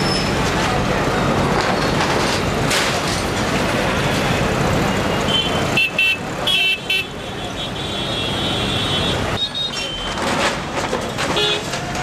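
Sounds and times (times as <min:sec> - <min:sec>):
demolition noise: 0:00.0 - 0:04.8, 0:09.7 - 0:12.0
backhoe loader running: 0:00.0 - 0:06.4, 0:09.6 - 0:12.0.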